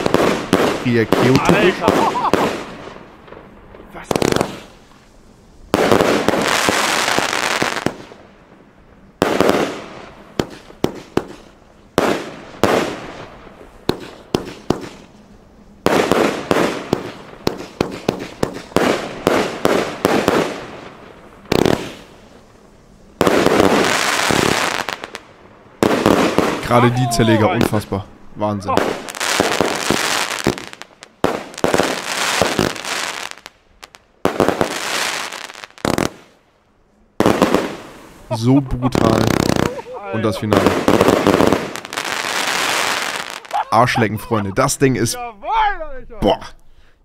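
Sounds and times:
firework shell reports: 0:00.0 - 0:02.7, 0:03.8 - 0:04.8, 0:26.4 - 0:29.5, 0:38.2 - 0:41.3, 0:43.7 - 0:46.6
firework crackling: 0:00.0 - 0:44.6.

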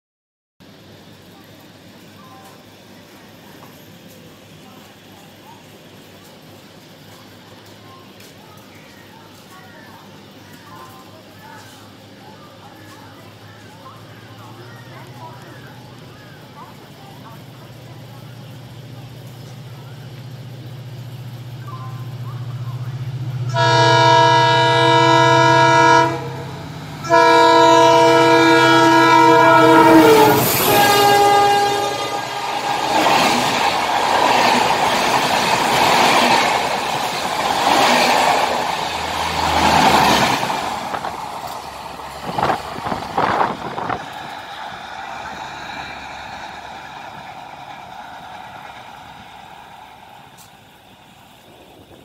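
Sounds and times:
diesel engine drone: 0:19.7 - 0:52.0
locomotive horn blasts: 0:23.4 - 0:33.0
train wheels clattering on rails: 0:30.4 - 0:52.0.

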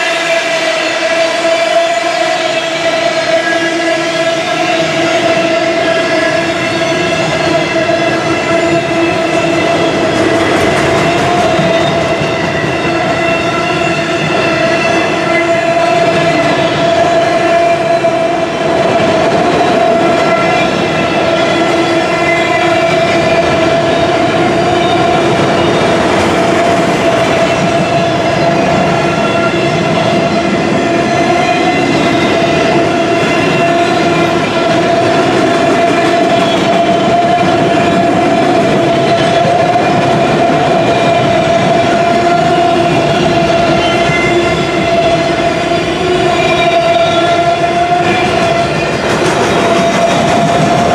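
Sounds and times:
freight train wheels clattering: 0:00.0 - 0:50.9.

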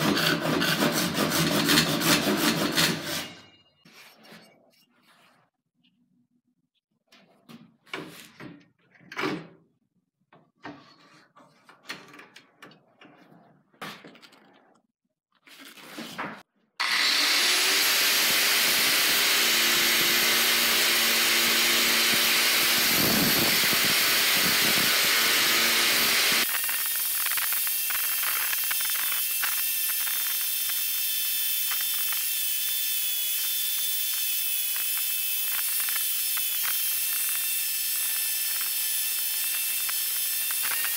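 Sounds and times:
angle grinder grinding metal: 0:16.8 - 0:40.9.

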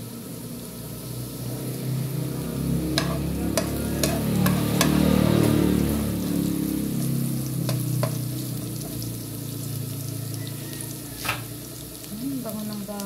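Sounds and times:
garlic sizzling in hot oil: 0:00.0 - 0:13.0
spatula tapping pan: 0:02.9 - 0:05.5, 0:07.0 - 0:09.1.

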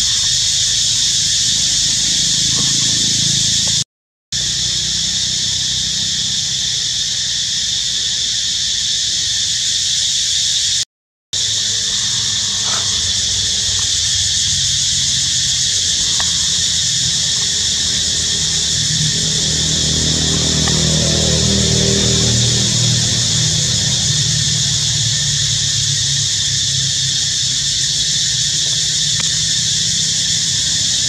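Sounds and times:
forest insects droning: 0:00.0 - 0:03.8, 0:04.4 - 0:10.8, 0:11.4 - 0:31.0
low rumble: 0:11.4 - 0:27.3.

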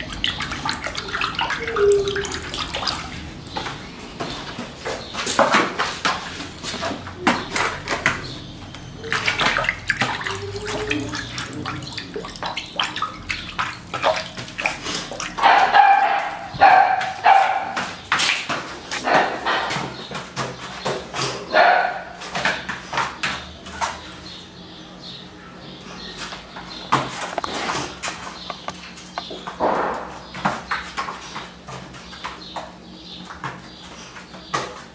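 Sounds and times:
dog whining: 0:01.0 - 0:02.5, 0:08.7 - 0:11.7
clicks and knocks on tiled floor: 0:03.5 - 0:10.3, 0:26.2 - 0:34.9.

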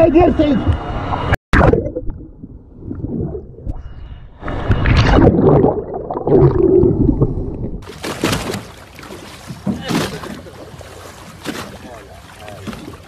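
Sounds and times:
underwater gurgling and rumbling: 0:00.7 - 0:07.9.

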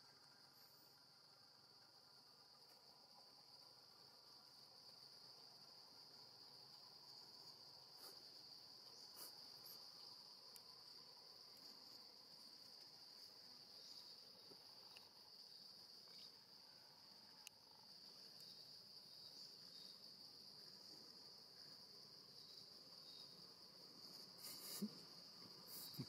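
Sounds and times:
high-pitched insect chorus: 0:00.0 - 0:26.0
faint ticks: 0:08.8 - 0:15.2, 0:17.3 - 0:17.6.

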